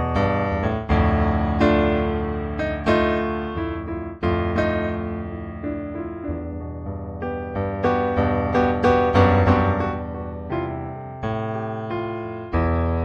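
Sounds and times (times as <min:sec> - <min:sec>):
solo piano chords: 0:00.0 - 0:13.0.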